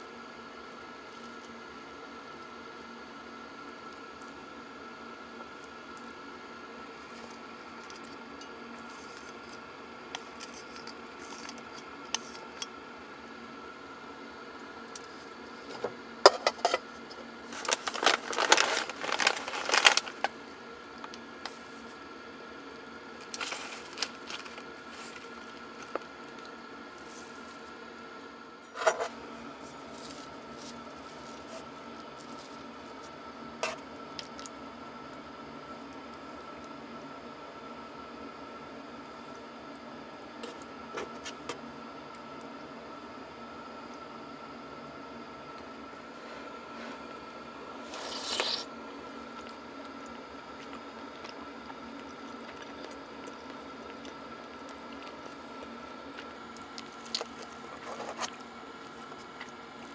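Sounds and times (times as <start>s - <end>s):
faint hum: 0.0s - 59.9s.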